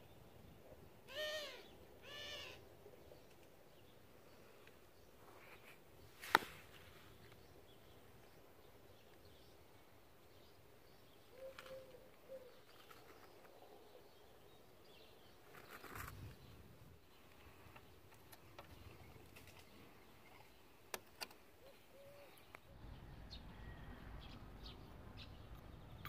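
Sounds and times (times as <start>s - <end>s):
faint bird call: 1.1s - 3.2s, 11.3s - 13.2s, 21.6s - 22.6s.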